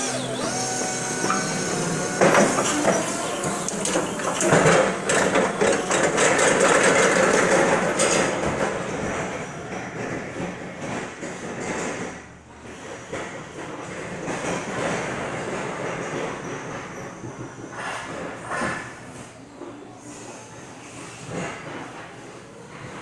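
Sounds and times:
motor and hydraulic whine: 0:00.0 - 0:07.2.

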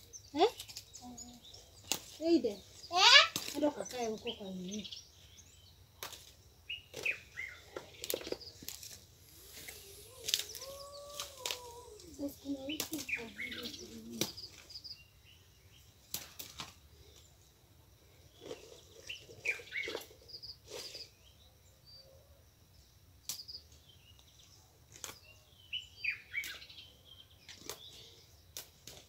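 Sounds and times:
leaves snapping: 0:01.8 - 0:02.2, 0:03.2 - 0:04.0, 0:06.0 - 0:14.8, 0:16.1 - 0:16.8, 0:24.9 - 0:25.2, 0:27.5 - 0:29.0
plants rustling: 0:06.0 - 0:14.9.

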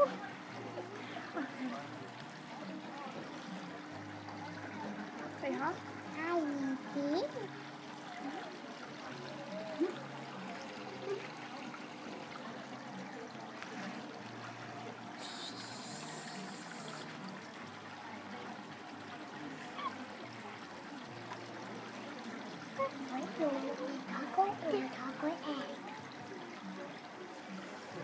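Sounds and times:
water trickling: 0:00.0 - 0:28.0
short hiss: 0:15.2 - 0:17.1.

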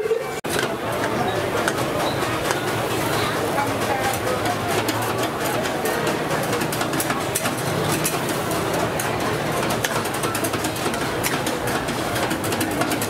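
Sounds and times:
clinks and clatter: 0:00.0 - 0:13.0
crowd din: 0:00.0 - 0:13.0.

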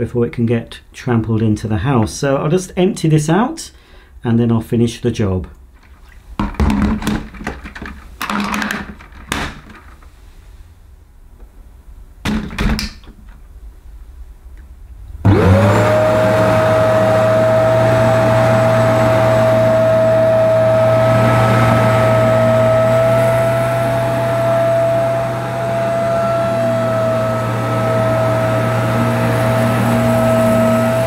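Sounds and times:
carpet washer motor whining: 0:15.3 - 0:31.0.

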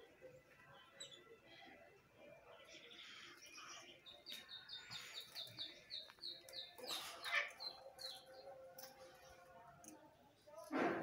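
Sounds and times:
canary singing: 0:02.5 - 0:09.2.

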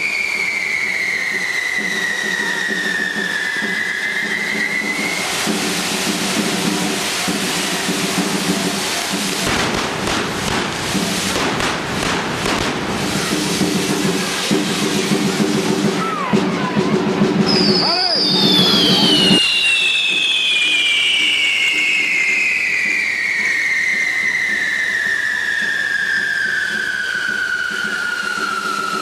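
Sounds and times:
spark fountains fizzing hiss: 0:00.0 - 0:16.2, 0:17.5 - 0:29.0
whistling firework descending: 0:00.0 - 0:16.2, 0:17.4 - 0:29.0
firework crackles: 0:00.0 - 0:29.0.

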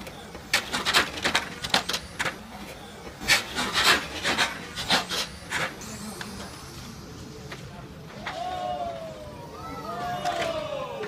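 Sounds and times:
rasping tyre scrub: 0:03.2 - 0:08.4.

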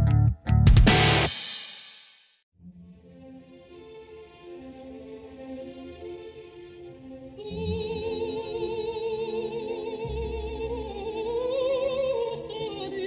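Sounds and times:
low instrumental accompaniment: 0:00.0 - 0:01.3
operatic voice singing: 0:07.3 - 0:13.0.

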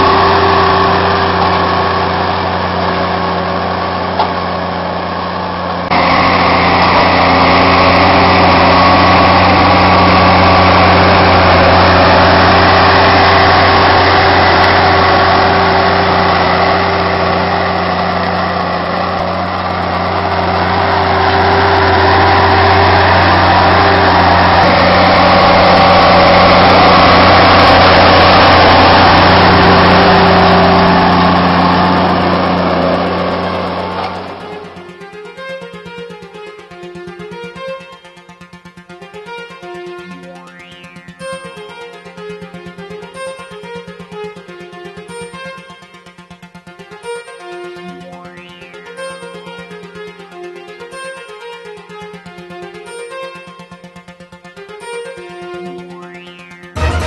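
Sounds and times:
tractor diesel engine under load: 0:00.0 - 0:39.0.

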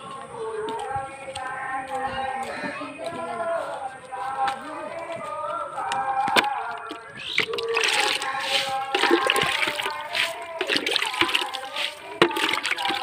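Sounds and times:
water splashing onto plants: 0:06.4 - 0:13.0.

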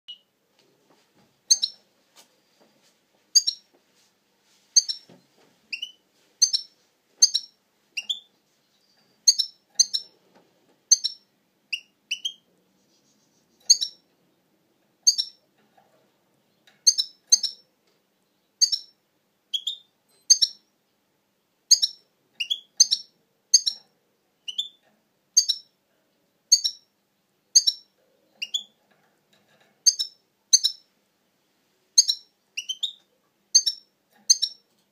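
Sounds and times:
goldfinch chirping: 0:01.5 - 0:01.8, 0:03.3 - 0:03.7, 0:04.8 - 0:05.1, 0:05.7 - 0:10.1, 0:10.9 - 0:12.5, 0:13.6 - 0:14.0, 0:15.0 - 0:15.4, 0:16.8 - 0:17.6, 0:18.4 - 0:20.7, 0:21.7 - 0:25.8, 0:26.5 - 0:26.9, 0:27.5 - 0:28.8, 0:29.8 - 0:30.9, 0:31.9 - 0:34.7.

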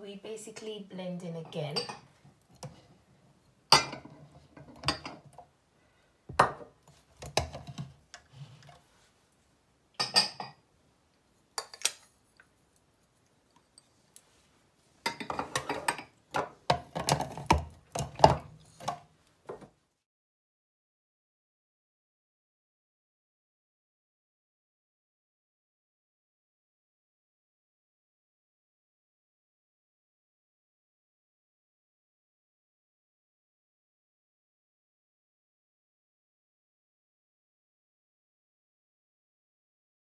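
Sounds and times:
kitchen utensils clinking and knocking: 0:01.4 - 0:02.1, 0:03.7 - 0:05.4, 0:06.3 - 0:07.9, 0:10.0 - 0:10.6, 0:15.0 - 0:19.6.

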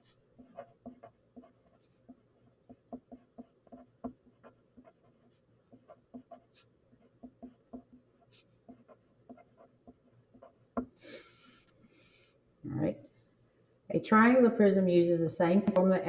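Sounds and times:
pencil writing on paper: 0:00.0 - 0:11.7.

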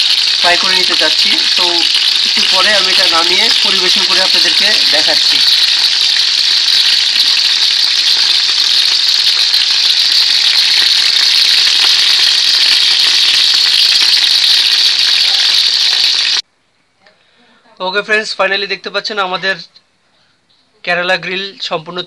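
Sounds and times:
chicken sizzling in hot oil: 0:00.0 - 0:16.4.

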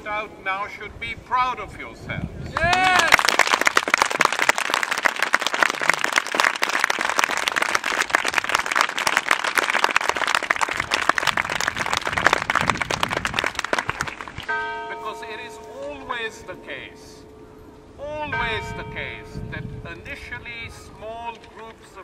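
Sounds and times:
crowd applauding: 0:02.6 - 0:14.5.

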